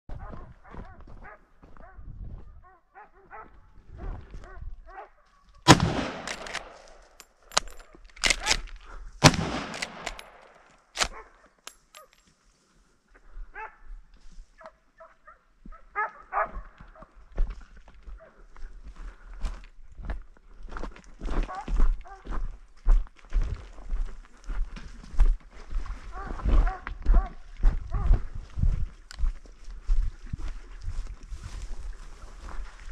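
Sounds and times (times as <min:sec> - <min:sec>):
dogs barking and baying: 0:02.6 - 0:05.6, 0:15.0 - 0:17.1, 0:21.4 - 0:22.3, 0:26.1 - 0:28.3
echoing gunshots: 0:05.7 - 0:07.6, 0:09.2 - 0:11.1.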